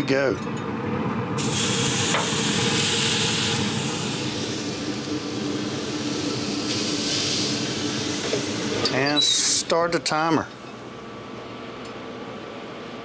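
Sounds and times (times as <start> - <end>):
steak sizzling on grill: 1.4 - 9.0.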